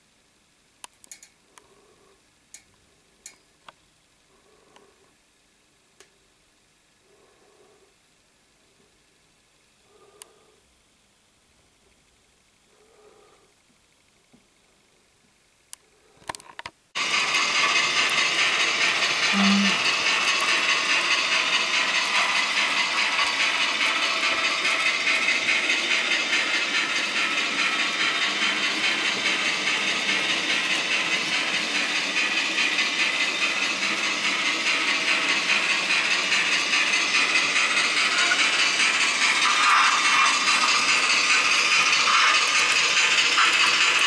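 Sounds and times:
model trains whirring on rails: 9.8s - 10.6s, 16.2s - 44.0s.

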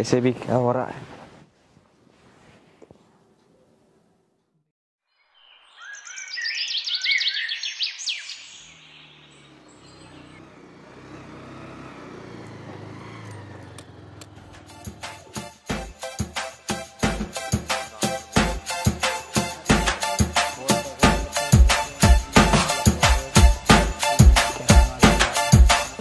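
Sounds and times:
birds chirping: 5.2s - 15.6s
motorcycle engine: 8.6s - 15.7s.

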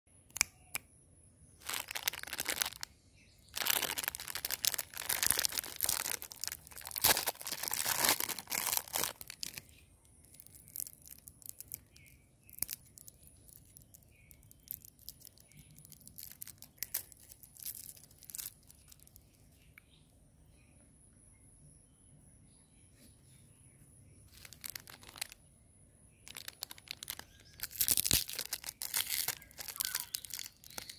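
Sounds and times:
foil crinkling and clicking: 1.6s - 2.9s, 3.6s - 9.6s, 10.3s - 19.1s, 24.3s - 25.4s, 26.3s - 30.9s
plastic wrapper tearing and crinkling: 1.6s - 2.9s, 3.5s - 9.7s, 10.3s - 19.2s, 24.3s - 25.4s, 26.2s - 30.9s.

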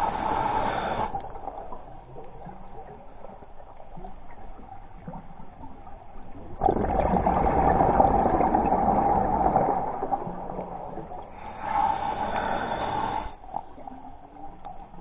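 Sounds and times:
underwater regulator bubbling: 6.3s - 14.0s.

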